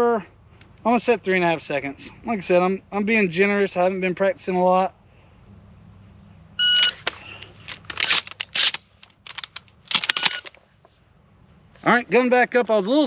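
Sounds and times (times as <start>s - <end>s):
shotgun loading clacks: 6.8s - 10.6s.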